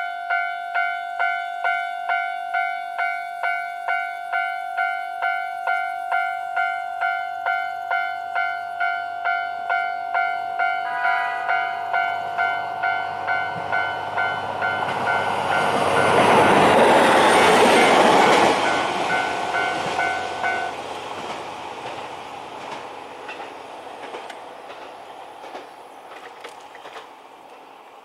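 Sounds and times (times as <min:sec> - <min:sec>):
level crossing alarm bell ringing: 0:00.0 - 0:16.2, 0:17.5 - 0:20.7
diesel railcar engine: 0:00.0 - 0:28.0
train wheel clicks: 0:13.3 - 0:27.7.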